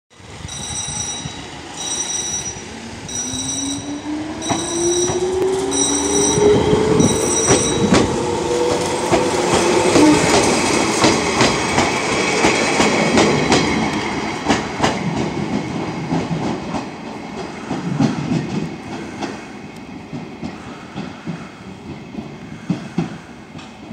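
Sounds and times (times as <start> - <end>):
electric train motor whine: 0.2 - 12.2
level crossing bell ringing: 0.4 - 7.9
train wheels clattering over rails: 0.4 - 23.9.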